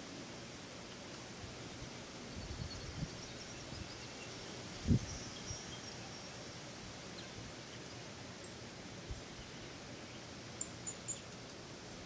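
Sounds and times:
steady hiss: 0.0s - 12.0s
small birds chirping: 0.9s - 8.6s, 9.2s - 11.7s.

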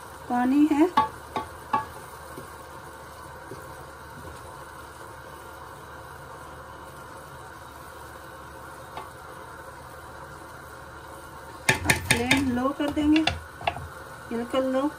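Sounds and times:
rice simmering in a pan: 0.0s - 14.9s
wooden spoon tapping: 0.9s - 2.5s, 11.7s - 13.9s.

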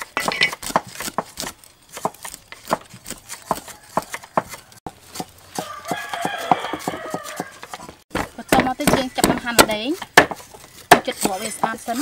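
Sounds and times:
cleaver chopping on wooden block: 0.0s - 12.0s
chicken crying: 5.6s - 7.7s.

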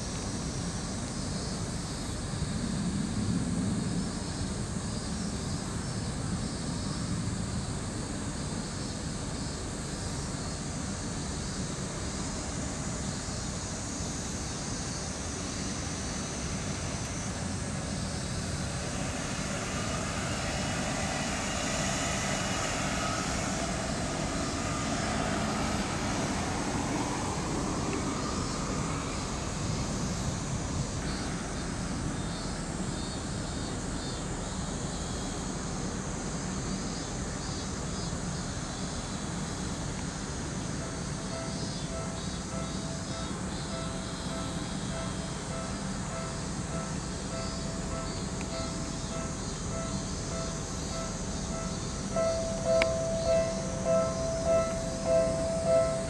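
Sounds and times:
aircraft engine noise: 0.0s - 56.0s
outdoor background hum: 0.0s - 56.0s
whine rising in pitch: 16.3s - 32.6s, 46.4s - 56.0s.

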